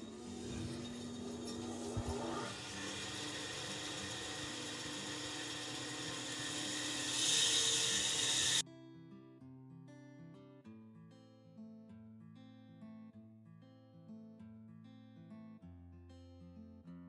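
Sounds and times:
bandsaw cutting wood: 0:00.0 - 0:08.6.

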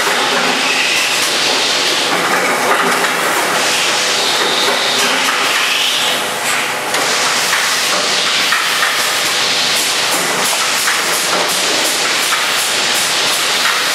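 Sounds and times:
steady machine hiss: 0:03.6 - 0:13.9.

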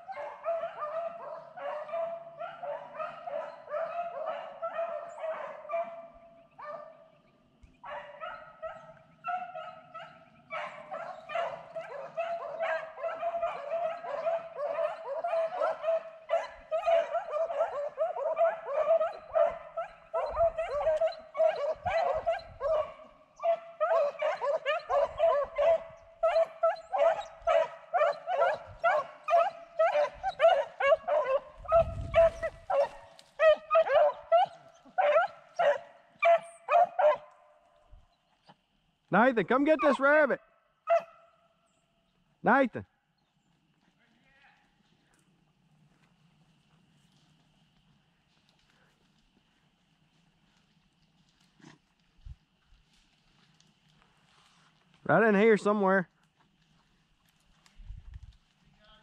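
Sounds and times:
hounds baying: 0:00.0 - 0:38.6, 0:39.5 - 0:41.6.

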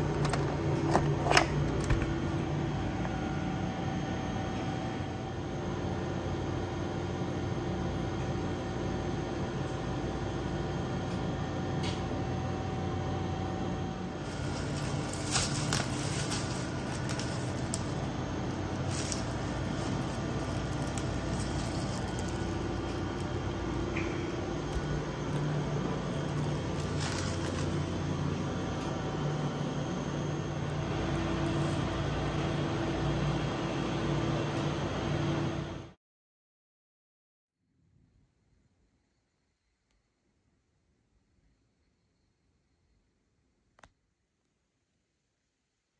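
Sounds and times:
vending machines humming: 0:00.0 - 0:36.0
plastic bag rustling: 0:14.1 - 0:29.0, 0:30.8 - 0:32.7.

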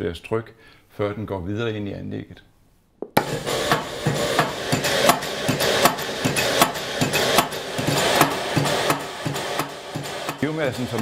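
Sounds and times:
piston pump hissing and clicking: 0:03.2 - 0:11.0.

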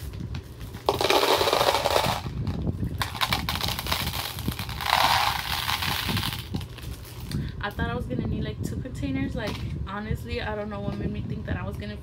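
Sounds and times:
candy pouring into plastic container: 0:00.8 - 0:07.4.

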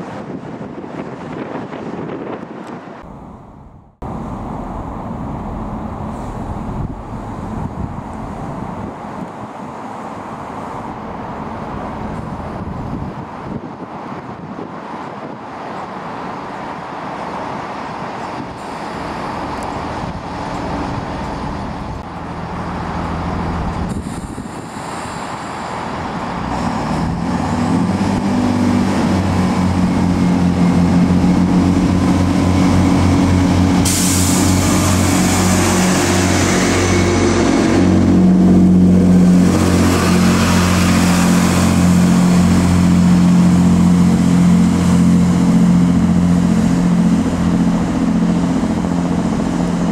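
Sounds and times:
train diesel engines throbbing: 0:03.0 - 0:49.9
brake air hiss: 0:33.8 - 0:35.0.

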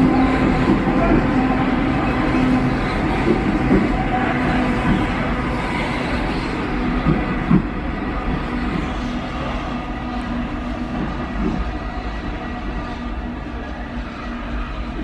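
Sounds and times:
metro train rumble: 0:00.0 - 0:15.0.

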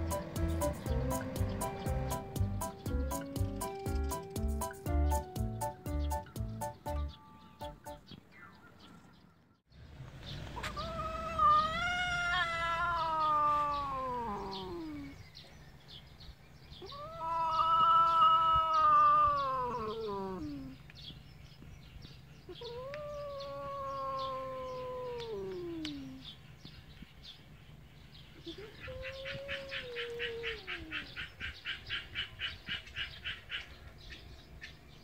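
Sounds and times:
cat yowling: 0:10.6 - 0:15.2, 0:16.8 - 0:20.8, 0:22.5 - 0:26.2, 0:28.4 - 0:31.1.

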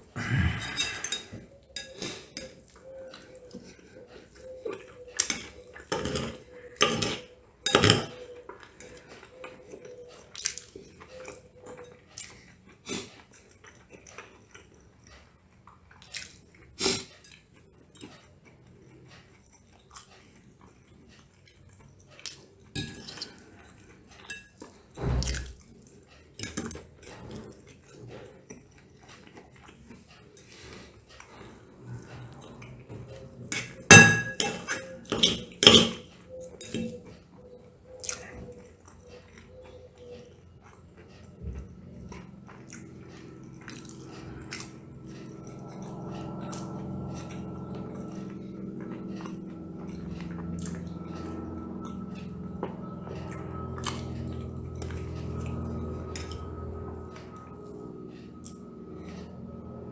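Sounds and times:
cutlery clinking on a ceramic plate: 0:05.2 - 0:08.3, 0:33.5 - 0:36.0.

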